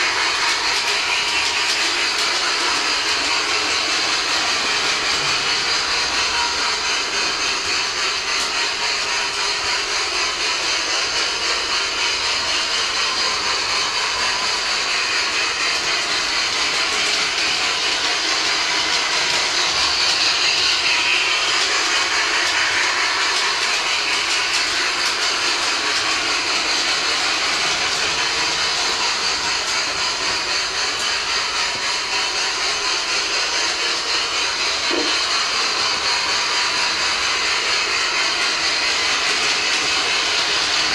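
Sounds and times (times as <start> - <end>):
model train whirring on track: 0.0 - 40.9.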